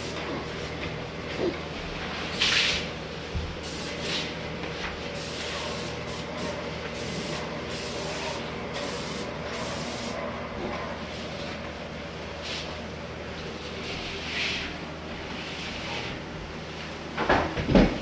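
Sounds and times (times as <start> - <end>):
paint sprayer gun hissing: 3.6 - 4.3, 5.2 - 10.2.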